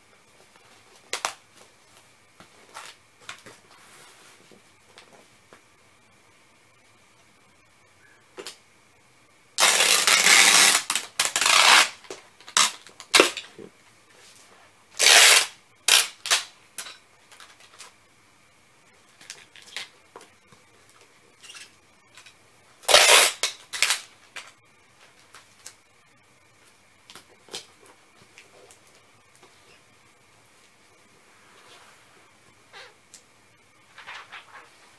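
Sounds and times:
packing tape ripping from tape gun: 9.6s - 13.5s, 15.0s - 16.5s, 22.8s - 24.1s.

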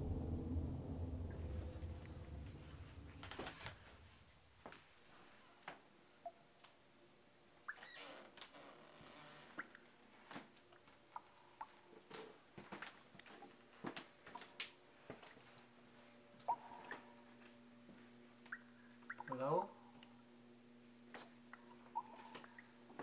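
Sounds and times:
soft hiss: 0.0s - 12.6s.

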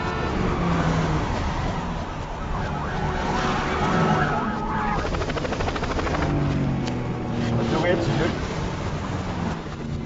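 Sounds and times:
police siren wailing: 0.0s - 5.3s
traffic rumble: 0.0s - 10.0s.

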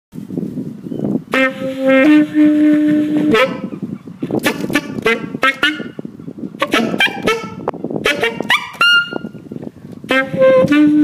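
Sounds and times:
short honks: 1.3s - 3.7s, 6.6s - 9.3s
honking notes: 1.3s - 6.0s, 6.6s - 9.4s.

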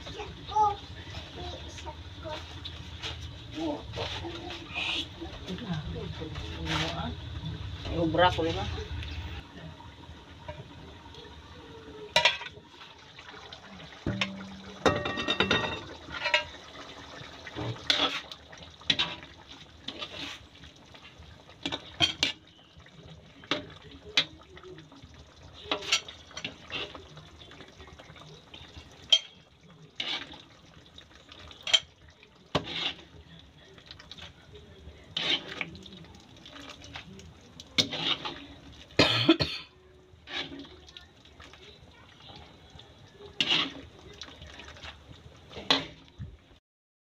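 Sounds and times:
sauce bubbling: 0.0s - 39.0s, 39.8s - 46.6s
spatula knocking and scraping wok: 14.0s - 16.5s, 32.5s - 33.0s, 35.2s - 35.6s, 37.8s - 38.4s.

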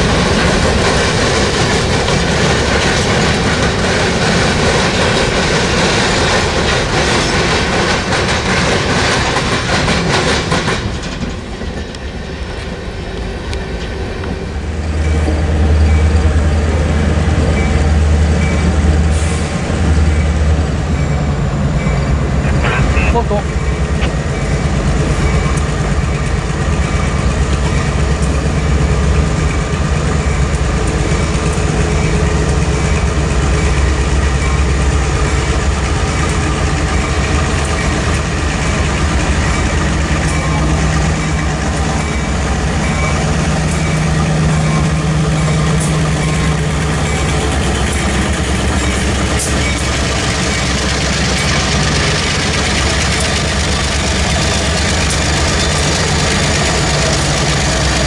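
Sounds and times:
locomotive engine drone: 0.0s - 58.0s
wheel and rail hiss: 18.4s - 19.7s.

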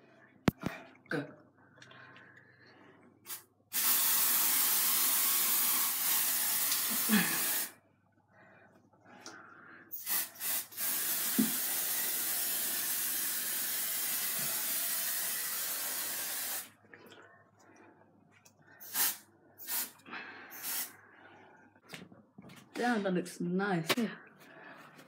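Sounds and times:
aerosol spray hissing: 3.3s - 7.7s, 9.9s - 16.7s, 18.8s - 20.9s.

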